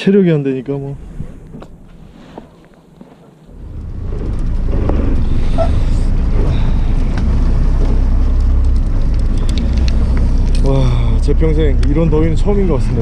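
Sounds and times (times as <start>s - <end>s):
boat engine rumbling: 3.5s - 13.0s.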